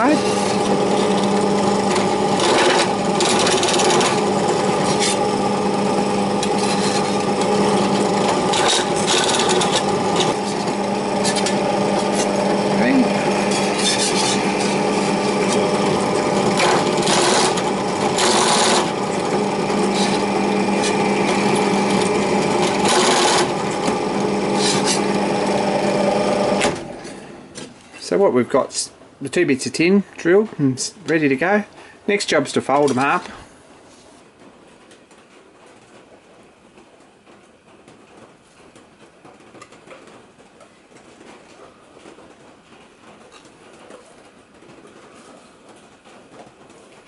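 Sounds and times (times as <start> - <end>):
drill bit scraping steel: 0.0 - 26.6
drill press motor humming: 0.0 - 27.6.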